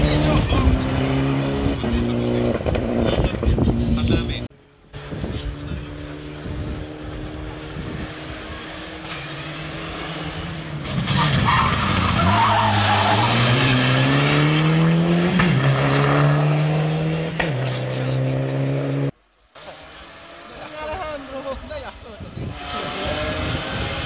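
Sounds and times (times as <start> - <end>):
rally car engine at full throttle: 0.0 - 19.2, 19.8 - 24.0
tyres squealing: 11.1 - 13.8.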